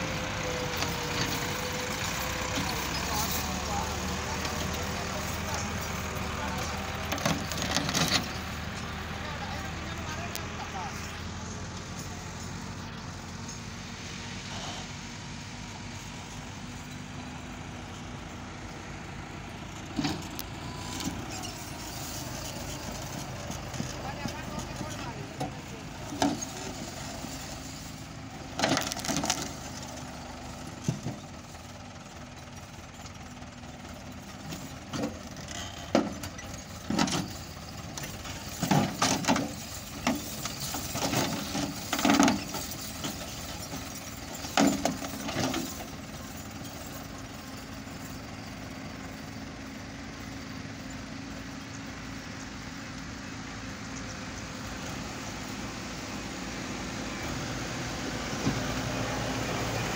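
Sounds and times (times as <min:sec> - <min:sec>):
tractor engine running: 0:00.0 - 0:59.9
knocks and clatter: 0:35.9 - 0:45.9.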